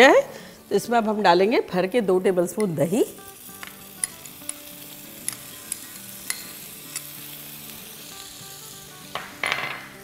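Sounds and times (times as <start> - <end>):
soft background music: 0.0 - 10.0
food sizzling in a frying pan: 2.4 - 10.0.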